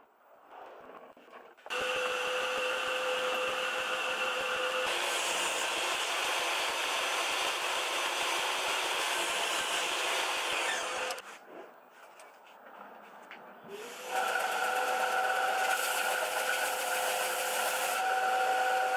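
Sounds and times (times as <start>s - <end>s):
table saw cutting plywood: 1.7s - 11.2s, 13.7s - 18.9s.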